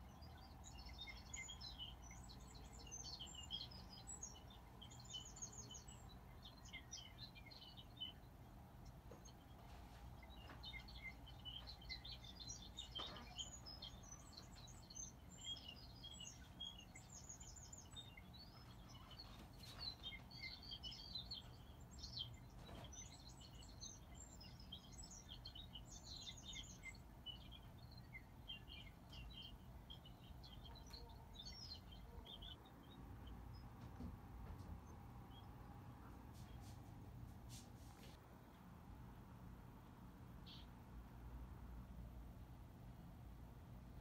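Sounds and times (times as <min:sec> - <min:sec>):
low steady hum: 0:00.0 - 0:44.0
small birds chirping: 0:00.0 - 0:44.0.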